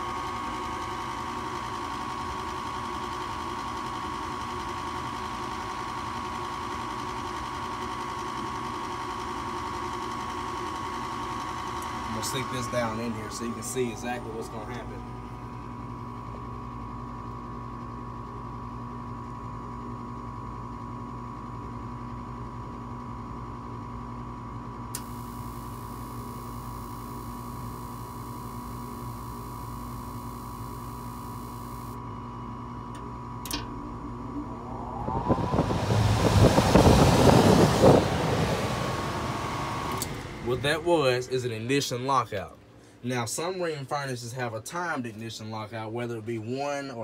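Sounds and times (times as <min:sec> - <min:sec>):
inducer motor humming: 0:11.0 - 0:18.0, 0:25.0 - 0:42.1
loud rushing noise: 0:33.5 - 0:41.2.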